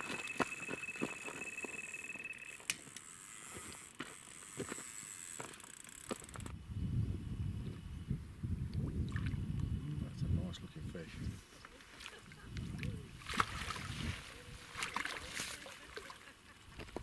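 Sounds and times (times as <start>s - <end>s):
bite alarm high tone: 0.0s - 2.7s
fishing reel clicking: 0.1s - 6.6s.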